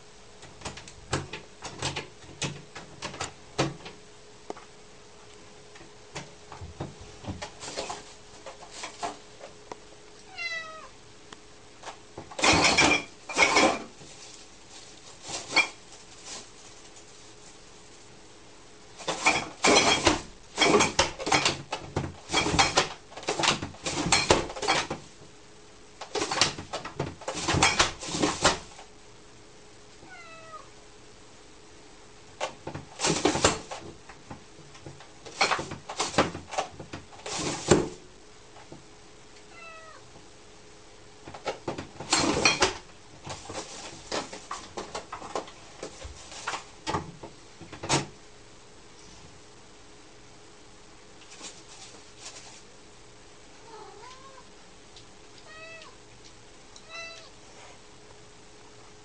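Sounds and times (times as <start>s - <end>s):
cat flap rattling and knocking: 0.4s - 4.0s, 11.8s - 13.9s, 19.0s - 25.0s, 26.1s - 28.7s, 32.4s - 38.0s
cat meowing: 10.3s - 11.0s, 30.0s - 30.7s, 39.5s - 40.1s, 53.6s - 54.5s, 55.4s - 56.0s, 56.8s - 57.4s.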